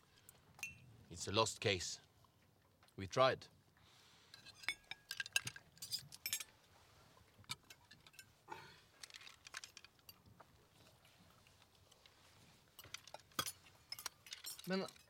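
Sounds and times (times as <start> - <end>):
cutlery and glasses clinking: 4.4 - 6.5, 12.8 - 15.0.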